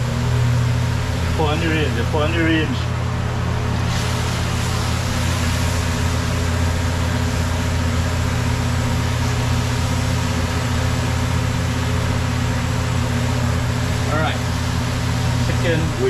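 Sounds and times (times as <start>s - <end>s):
low mechanical hum: 0.0s - 16.0s
pot boiling hard: 0.0s - 16.0s.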